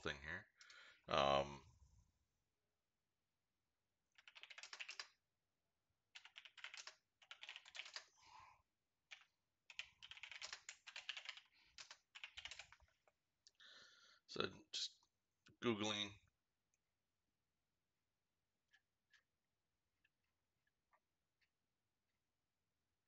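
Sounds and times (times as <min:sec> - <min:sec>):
typing on computer keyboard: 0:04.1 - 0:05.2, 0:06.1 - 0:08.1, 0:09.1 - 0:13.0.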